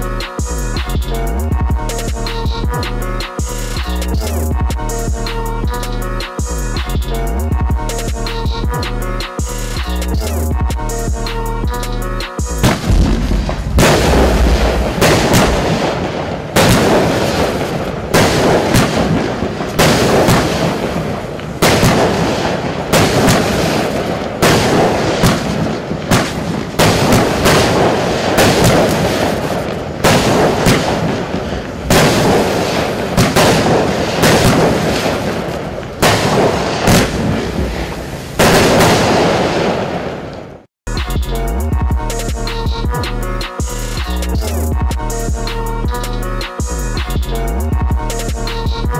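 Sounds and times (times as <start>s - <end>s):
fireworks crackling: 12.4s - 40.7s
fireworks bangs: 12.6s - 40.7s.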